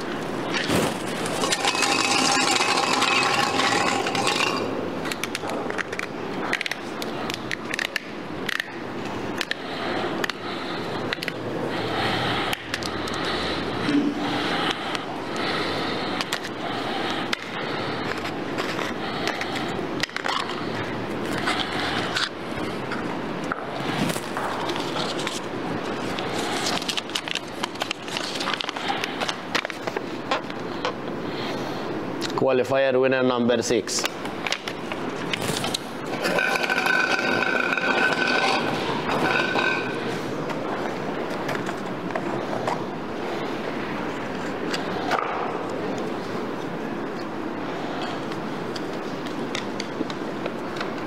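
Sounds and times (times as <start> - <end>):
rustling and clattering handling noise: 0.0 - 8.6, 23.8 - 31.0, 34.0 - 42.9
draw balls clicking and rattling: 0.5 - 8.8, 34.5 - 41.9.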